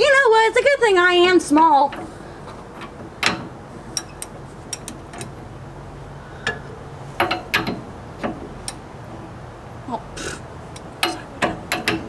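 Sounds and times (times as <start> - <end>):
ratchet wrench clicking: 3.2 - 5.3.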